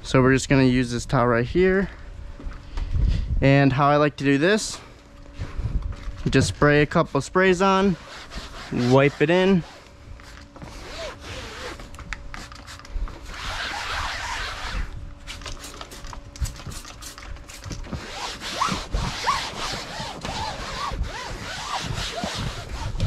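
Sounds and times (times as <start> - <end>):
towel rubbing on vinyl: 7.4 - 9.9, 10.6 - 11.9, 13.2 - 14.9, 17.9 - 23.0.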